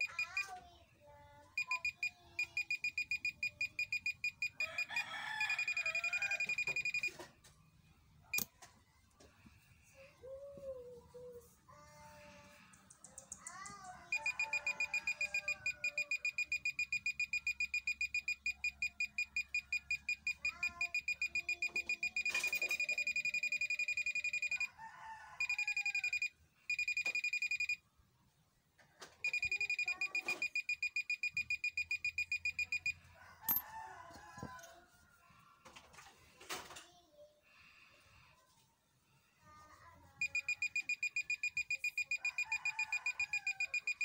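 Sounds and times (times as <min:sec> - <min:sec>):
metal detector high electronic beeps: 0:00.0 - 0:00.4, 0:01.6 - 0:07.2, 0:14.1 - 0:24.6, 0:25.4 - 0:27.8, 0:29.2 - 0:33.6, 0:40.2 - 0:44.0.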